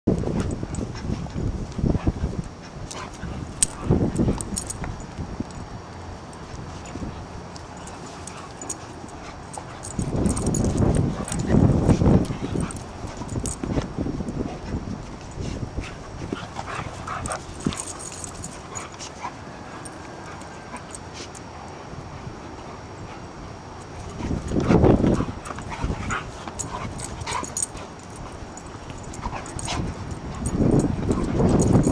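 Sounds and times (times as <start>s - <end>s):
dogs play-wrestling: 0.2s - 31.9s
dogs whimpering and yipping: 6.7s - 13.8s, 15.4s - 21.5s, 24.0s - 31.9s.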